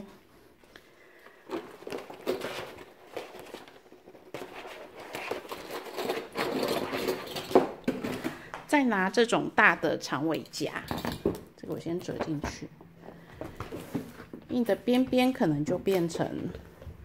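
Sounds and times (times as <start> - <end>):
fabric and plastic rustling: 0.0 - 8.7, 12.3 - 17.0.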